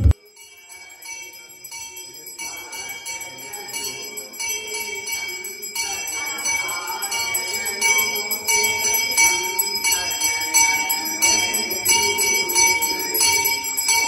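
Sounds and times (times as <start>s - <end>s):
faint voice chanting: 0.0s - 14.0s
hand bell ringing rapidly: 0.2s - 14.0s.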